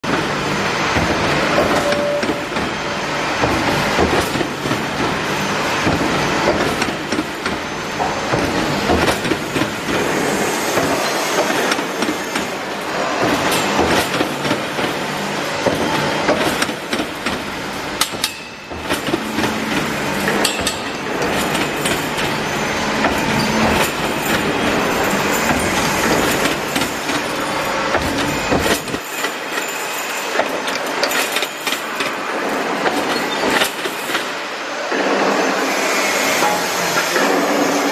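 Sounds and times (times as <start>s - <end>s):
wire netting machine rattling: 8.3s - 34.3s.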